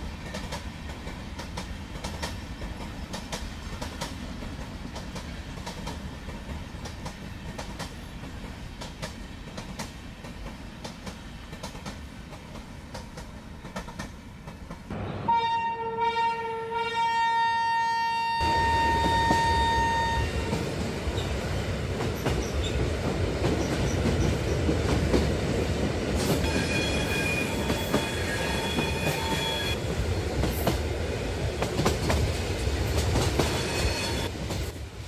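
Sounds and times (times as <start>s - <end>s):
train rumble and wheel clatter: 0.0s - 15.4s, 18.4s - 35.0s
train horn blast: 14.9s - 20.6s.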